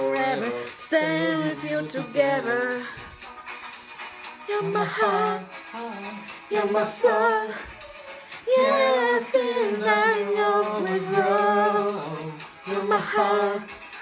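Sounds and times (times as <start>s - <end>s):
music backing track: 0.0s - 14.0s
man singing into microphone: 8.5s - 13.7s.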